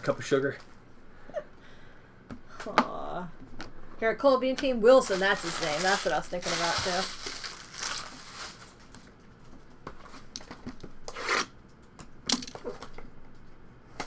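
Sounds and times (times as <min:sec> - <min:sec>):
shrink wrap crinkling and tearing: 0:04.9 - 0:09.2.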